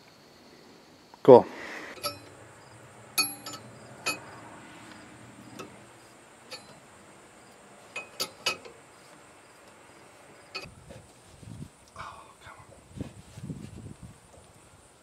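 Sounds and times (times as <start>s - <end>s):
wrench clinking on metal: 2.0s - 2.4s, 3.2s - 4.3s, 6.5s - 6.8s, 7.9s - 8.7s.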